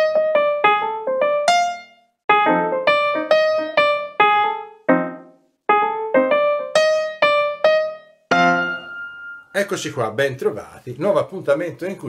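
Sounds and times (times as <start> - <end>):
slow solo piano melody: 0.0 - 9.5.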